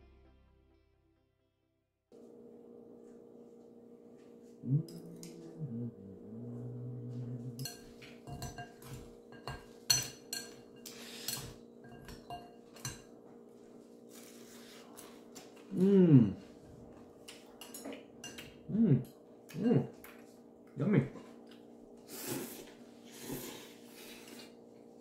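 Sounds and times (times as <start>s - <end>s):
low steady tone: 4.6s - 7.8s
utensils clinking on ceramic bowl: 7.3s - 13.2s, 17.4s - 19.2s.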